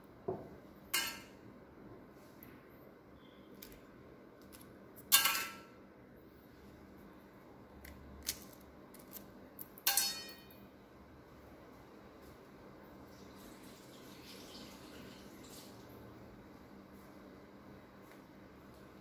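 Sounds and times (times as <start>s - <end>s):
steel kitchenware clinking: 0.9s - 1.4s, 5.0s - 5.7s, 9.8s - 10.6s.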